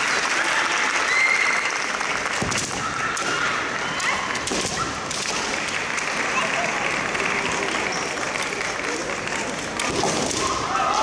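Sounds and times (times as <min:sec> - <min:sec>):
spectators applauding: 0:00.0 - 0:04.4, 0:05.5 - 0:09.7
crowd voices: 0:00.0 - 0:11.0.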